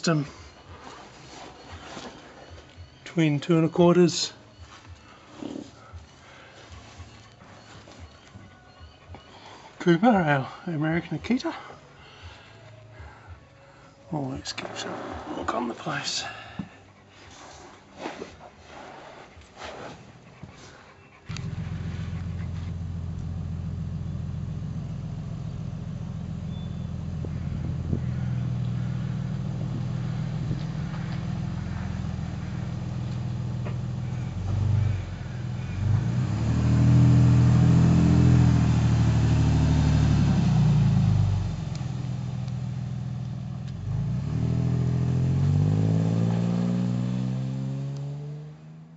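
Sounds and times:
car engine idling and revving: 20.3s - 48.9s.

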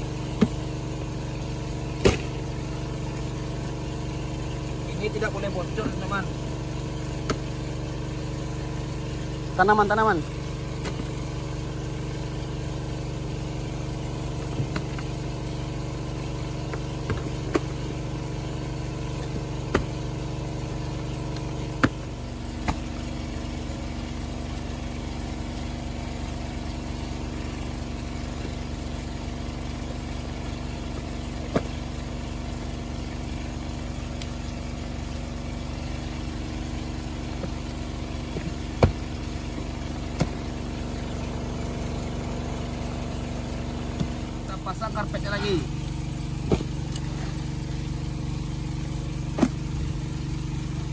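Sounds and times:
engine driving water pump: 0.0s - 50.9s
sharp knocks: 38.3s - 39.1s.

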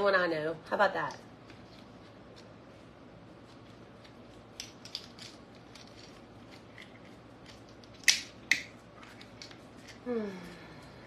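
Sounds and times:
sharp plastic snaps: 7.8s - 8.7s.

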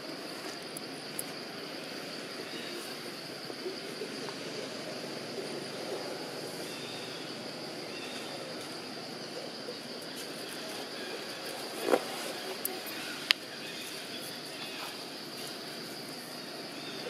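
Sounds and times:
constant background noise: 0.0s - 17.0s
high-pitched insect drone: 0.0s - 17.0s.

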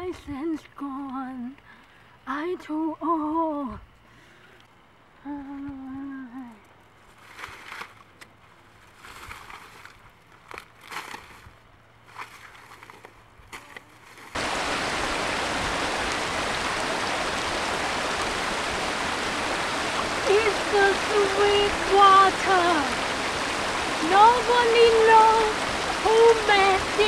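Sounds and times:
dry grass rustling: 6.9s - 20.3s
stream rushing over rocks: 14.4s - 27.0s.

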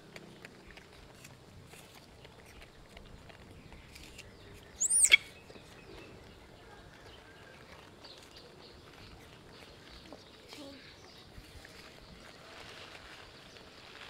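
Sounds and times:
baby monkey shrill squeal: 4.8s - 5.3s.

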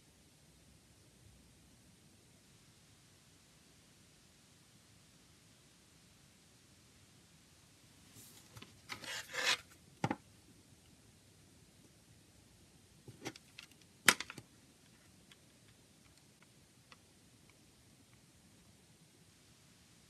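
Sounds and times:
plastic case scraping: 8.6s - 9.6s.

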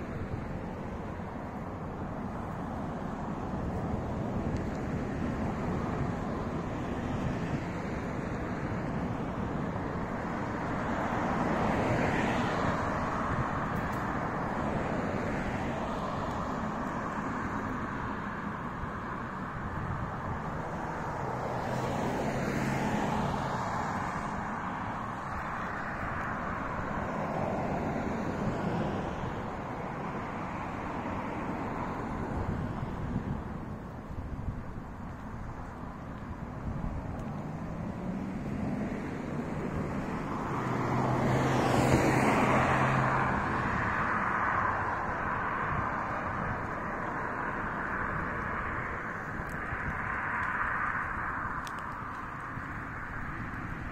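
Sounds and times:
cars passing: 0.0s - 53.9s
road noise: 0.0s - 53.9s.

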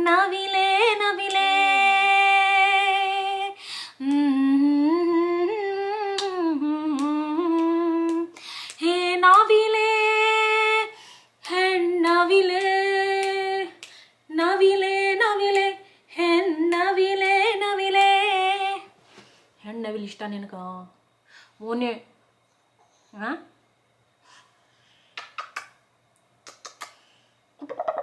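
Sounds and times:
woman singing a slow tune: 0.0s - 19.0s.

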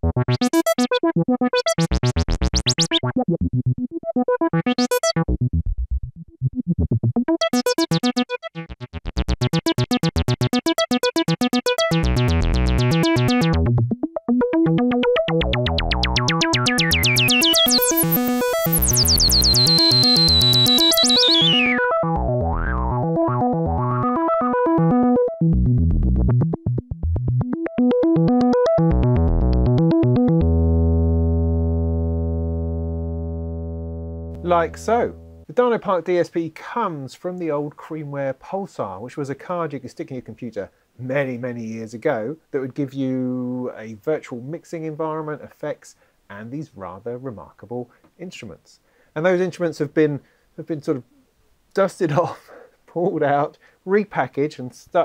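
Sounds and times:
synthesizer fast repeated notes: 0.0s - 35.5s.

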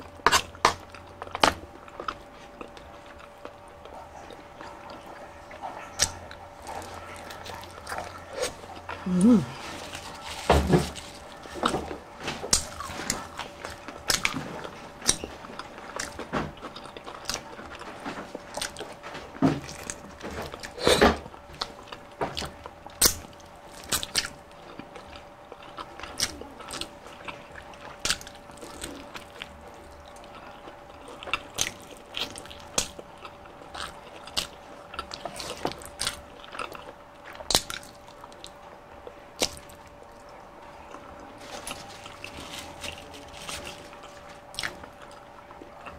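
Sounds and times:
faint steady hum: 0.0s - 45.9s
fried chicken being bitten and chewed: 19.6s - 45.9s.

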